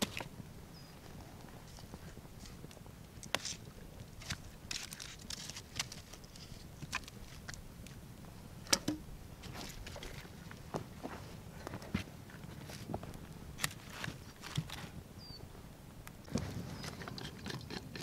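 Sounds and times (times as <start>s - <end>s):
campfire crackling: 0.0s - 9.6s.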